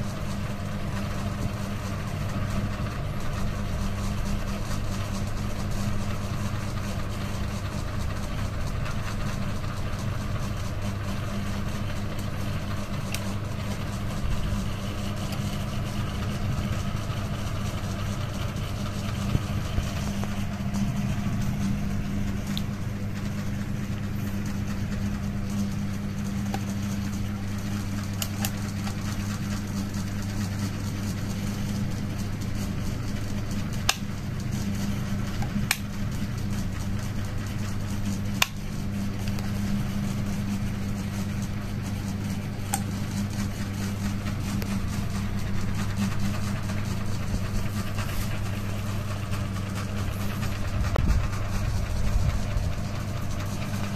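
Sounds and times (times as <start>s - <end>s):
ceiling fan humming: 0.0s - 53.9s.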